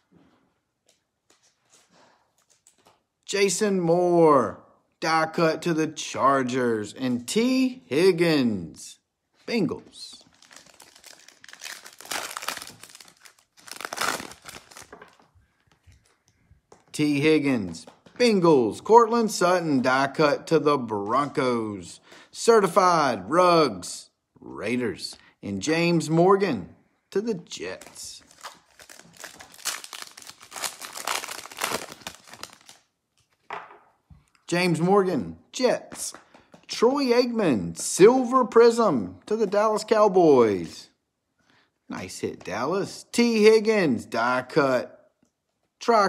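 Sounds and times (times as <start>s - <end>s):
foil wrapper tearing and crinkling: 10.3s - 15.1s, 28.3s - 32.8s.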